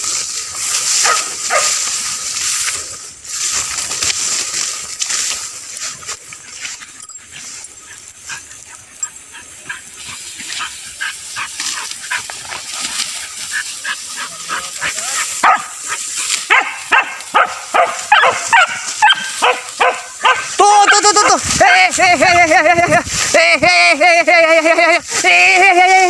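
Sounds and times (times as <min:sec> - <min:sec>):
beagles barking and baying: 0:00.8 - 0:02.2, 0:04.8 - 0:23.0.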